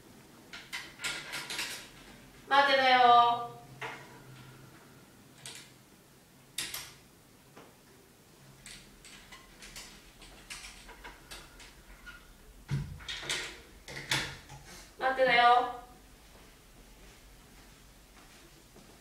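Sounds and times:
light footsteps on hard floor: 0:16.2 - 0:19.0.

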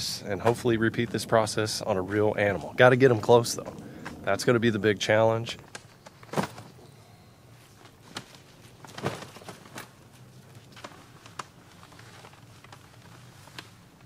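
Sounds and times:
fabric rustling: 0:07.6 - 0:14.0.

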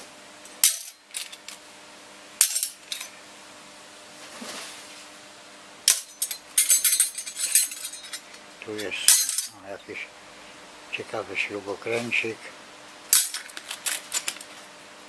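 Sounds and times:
metal cutlery clinking: 0:05.9 - 0:09.6.

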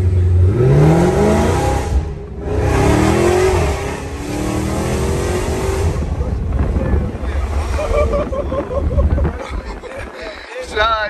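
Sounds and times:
car engine accelerating hard: 0:00.0 - 0:08.9.

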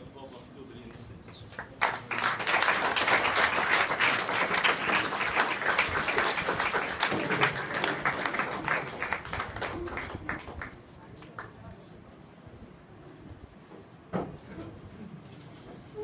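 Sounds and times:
audience applauding: 0:01.6 - 0:11.5.

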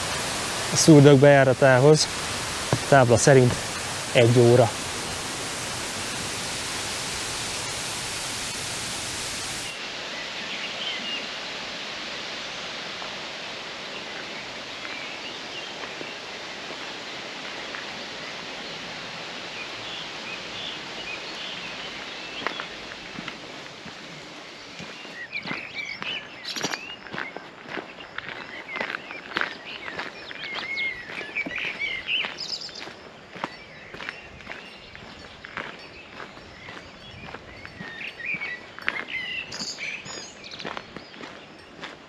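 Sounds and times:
waterfall roar: 0:00.0 - 0:23.5
water rushing: 0:00.0 - 0:24.7
bird chirps: 0:28.0 - 0:41.8.

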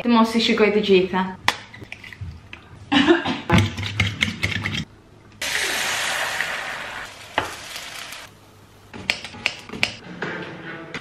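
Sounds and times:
egg sizzling in frying pan: 0:05.4 - 0:08.3.

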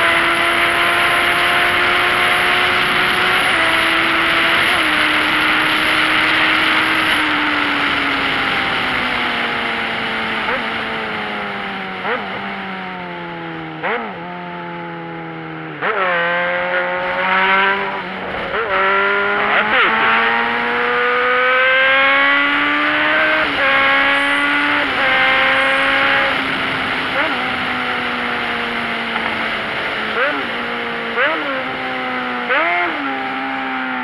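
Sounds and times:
wind and road hiss: 0:22.3 - 0:33.5
vehicle engine changing gear: 0:23.0 - 0:30.6.

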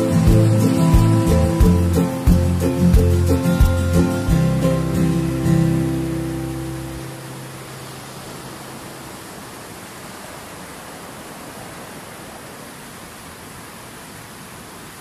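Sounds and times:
guitar note: 0:00.0 - 0:07.6
river rushing over rocks: 0:00.0 - 0:15.0.

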